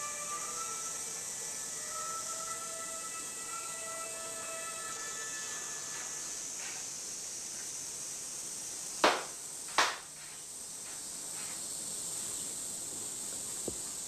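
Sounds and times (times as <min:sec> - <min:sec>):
steady hiss: 0:00.0 - 0:14.0
hand claps: 0:09.0 - 0:10.0.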